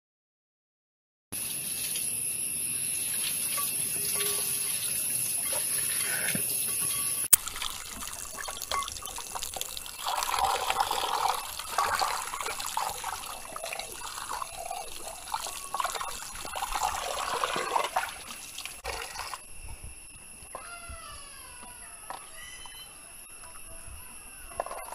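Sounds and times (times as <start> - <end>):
water splashing and sloshing: 2.8 - 19.6
tap water rushing into pot: 3.2 - 19.4.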